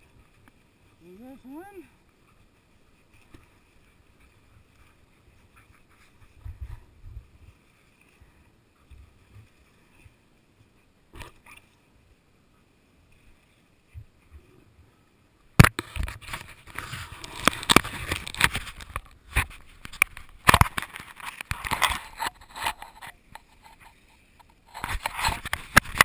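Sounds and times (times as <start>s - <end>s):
hand rubbing camera housing: 15.6s - 26.0s.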